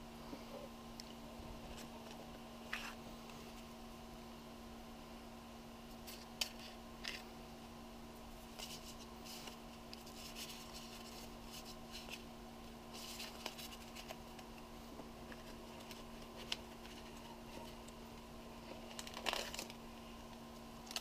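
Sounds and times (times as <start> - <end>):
steady low hum: 0.0 - 21.0
paper rustling: 8.5 - 12.3, 12.9 - 14.4, 15.3 - 17.9, 18.6 - 19.8.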